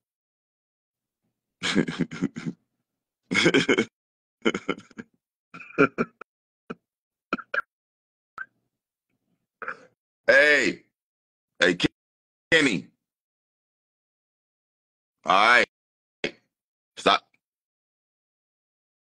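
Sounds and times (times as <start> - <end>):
man laughing: 1.6 - 2.6, 3.3 - 6.8.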